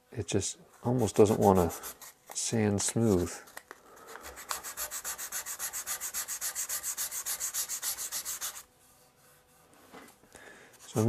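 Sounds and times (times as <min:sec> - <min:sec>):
sandpaper rasping on wood: 0:04.3 - 0:09.4.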